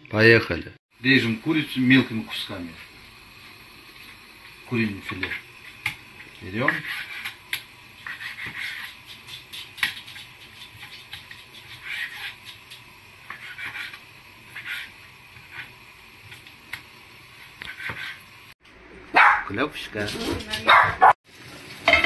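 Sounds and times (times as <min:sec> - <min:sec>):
knife slicing scrapes: 0:06.7 - 0:07.4, 0:08.0 - 0:15.7.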